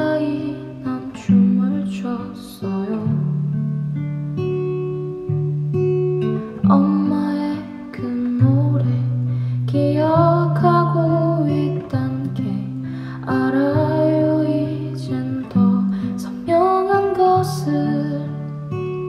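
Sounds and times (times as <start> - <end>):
acoustic guitar chords: 0.0 - 19.0.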